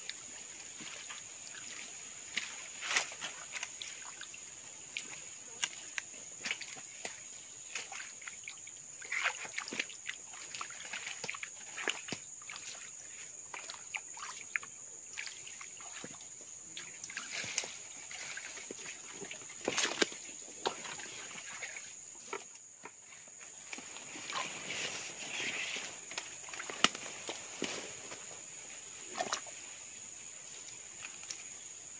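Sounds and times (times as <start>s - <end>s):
high insect drone: 0.0s - 31.9s
water sloshing: 0.1s - 29.8s
machete chopping roots and mud: 26.6s - 27.8s.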